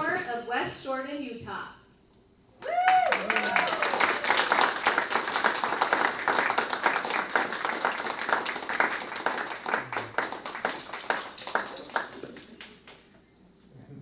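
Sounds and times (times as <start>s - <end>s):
audience applauding: 2.6s - 13.1s.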